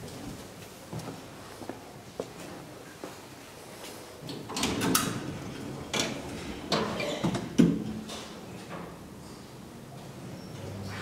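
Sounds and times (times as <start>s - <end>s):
elevator doors clunking shut: 4.2s - 9.1s
elevator doors rolling rumble: 4.2s - 9.2s.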